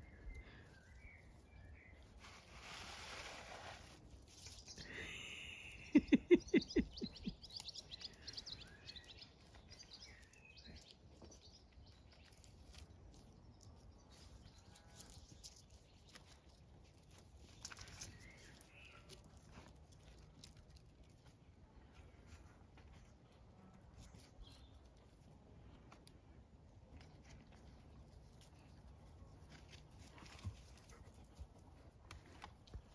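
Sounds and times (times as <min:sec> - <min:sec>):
small birds chirping: 0:00.0 - 0:03.2, 0:04.2 - 0:23.1, 0:23.9 - 0:25.3.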